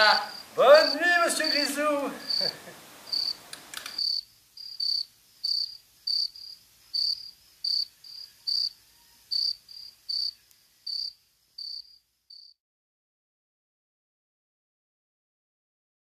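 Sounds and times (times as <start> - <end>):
cricket chirping: 0.0 - 12.6.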